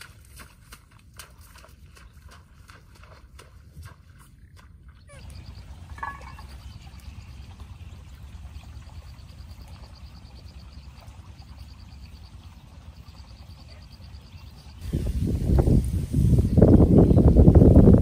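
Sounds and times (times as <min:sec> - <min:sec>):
water boiling in a pot: 0:05.6 - 0:13.8.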